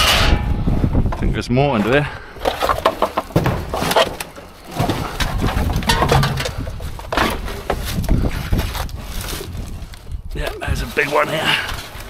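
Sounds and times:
rummaging through scrap: 1.8s - 10.0s, 10.8s - 12.0s.

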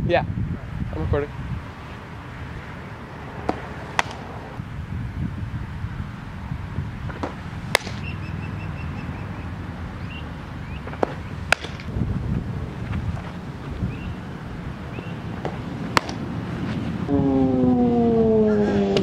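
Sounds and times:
wind rumble on microphone: 0.0s - 19.0s
ball smacking into leather mitt: 3.4s - 4.3s, 7.1s - 8.1s, 10.8s - 11.9s, 15.4s - 16.2s.

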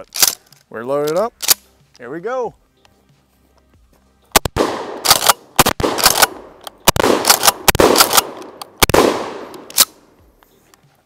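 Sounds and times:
shotgun pump action racking: 0.0s - 1.7s, 5.0s - 10.0s
shotgun shots with echo: 4.4s - 9.9s.

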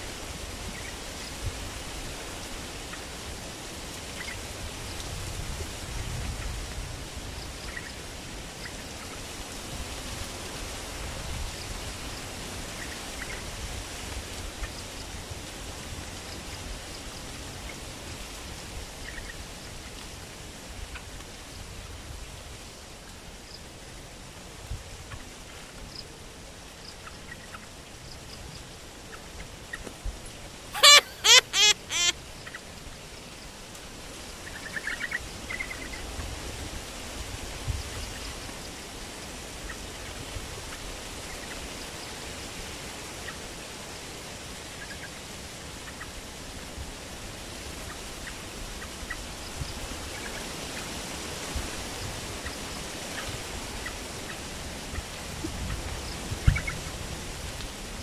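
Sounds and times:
outdoor background noise: 0.0s - 58.0s
faint bird chirps: 30.8s - 32.1s
loud harsh bird calls: 30.8s - 32.1s.

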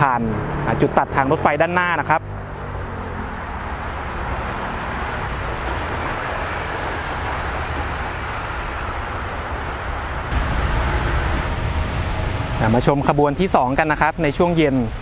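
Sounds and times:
road traffic rumble: 0.0s - 15.0s
thin high whine: 5.9s - 12.5s.

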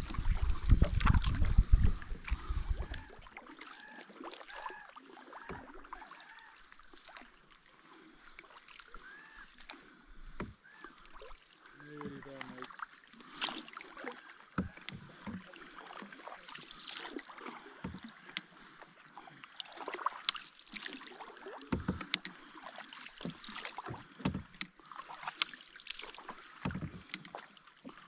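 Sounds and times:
paddles splashing in water: 0.0s - 28.0s.

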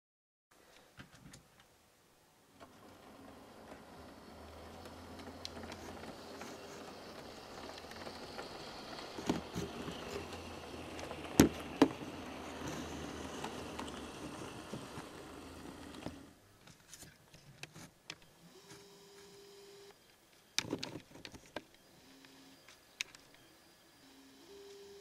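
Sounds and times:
model train motor hum and wheel rumble: 2.6s - 16.4s.

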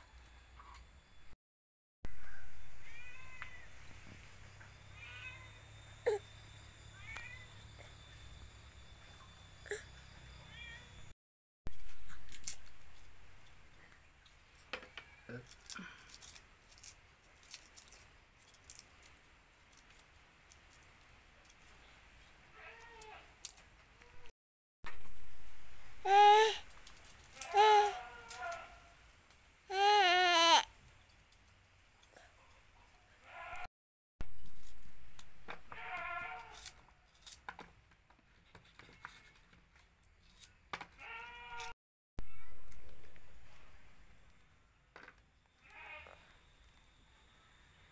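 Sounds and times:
high-pitched cry: 5.0s - 6.3s, 27.4s - 28.7s, 29.7s - 30.7s
farm animal bleating: 35.7s - 36.6s, 41.0s - 41.7s, 45.6s - 46.4s.

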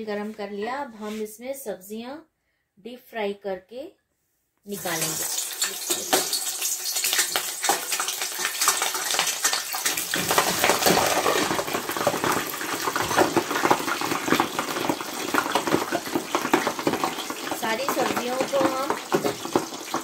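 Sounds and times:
vegetables deep-frying in hot oil: 4.7s - 20.0s.

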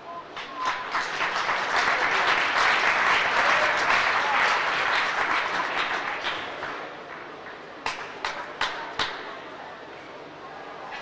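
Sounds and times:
crowd applauding: 0.4s - 9.1s.

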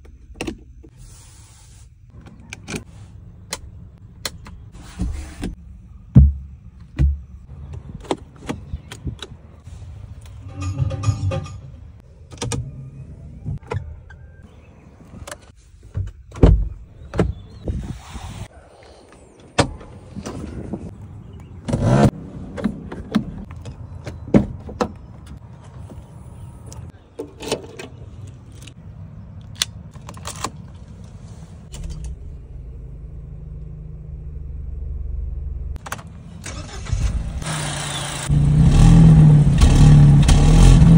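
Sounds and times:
car engine starting and running: 20.1s - 24.2s, 28.5s - 40.9s
low hum: 31.7s - 35.8s.

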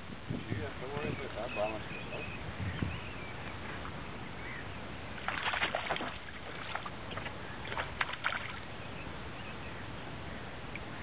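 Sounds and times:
fish splashing at surface: 5.2s - 8.6s
lapping water: 5.2s - 8.6s.

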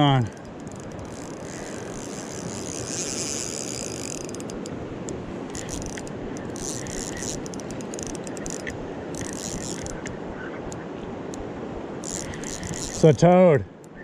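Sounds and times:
fishing reel clicking and buzzing: 0.0s - 4.8s, 5.5s - 10.2s, 12.0s - 13.2s
river rushing: 0.0s - 14.0s.

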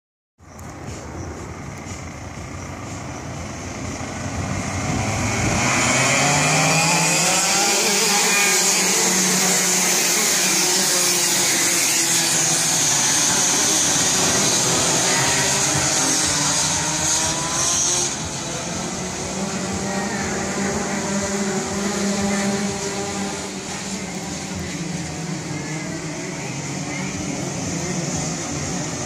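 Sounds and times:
kart engines buzzing: 0.4s - 29.0s.

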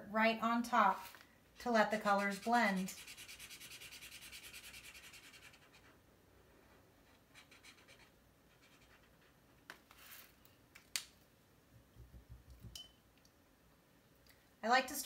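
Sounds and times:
marker scratching on paper: 1.9s - 6.0s, 7.0s - 9.4s.

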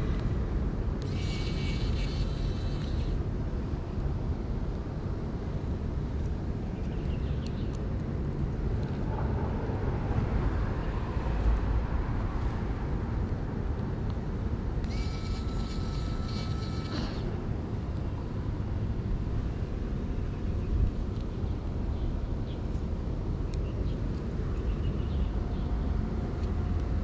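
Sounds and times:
low outdoor rumble: 0.0s - 27.0s
high tonal hiss: 1.0s - 3.2s.

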